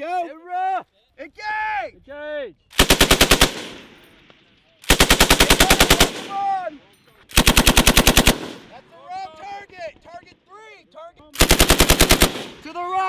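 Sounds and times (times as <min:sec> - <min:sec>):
machine gun bursts: 0:02.8 - 0:03.8, 0:04.8 - 0:06.4, 0:07.3 - 0:08.7, 0:11.4 - 0:12.6.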